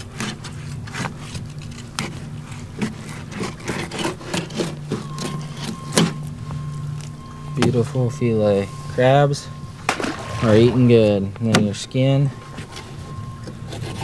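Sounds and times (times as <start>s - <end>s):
knife sawing through fish: 0.0s - 6.1s, 12.5s - 14.0s
knife scraping on table: 0.2s - 6.1s.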